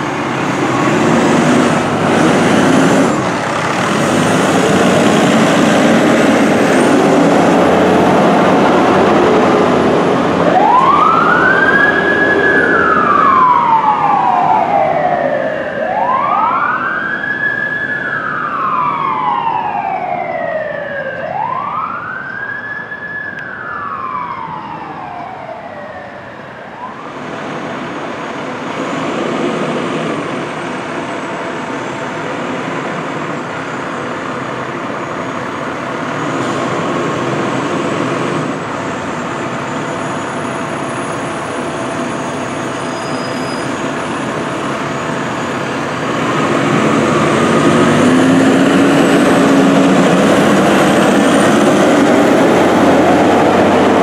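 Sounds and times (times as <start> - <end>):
diesel engine running: 0.0 - 15.0, 27.2 - 54.0
fire truck siren wailing: 0.0 - 54.0.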